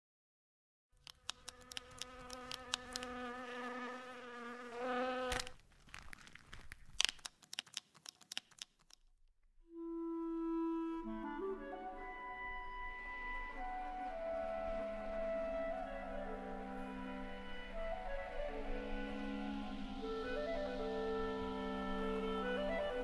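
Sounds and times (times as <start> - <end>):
clicks and taps: 1.0 - 3.1, 6.8 - 9.0
insect-like buzz: 1.0 - 5.6.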